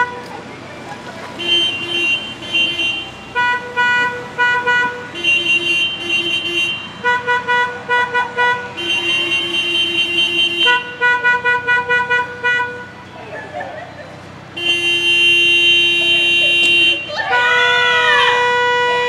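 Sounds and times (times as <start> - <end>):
car horns tooting: 0.0 - 0.4, 1.2 - 19.0.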